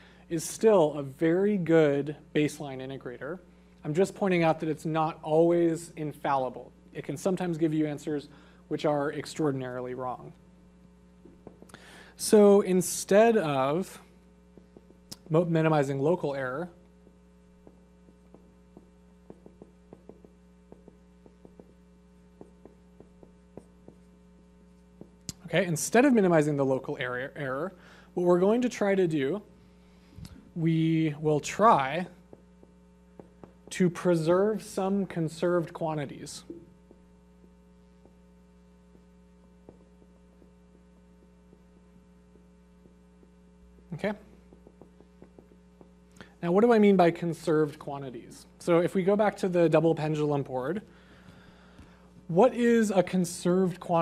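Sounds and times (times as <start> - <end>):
electrical hum: 0.0 - 54.0
marker tapping on whiteboard: 11.2 - 11.8, 14.6 - 15.6, 17.6 - 24.1, 31.4 - 34.0, 39.6 - 40.6, 42.8 - 46.0.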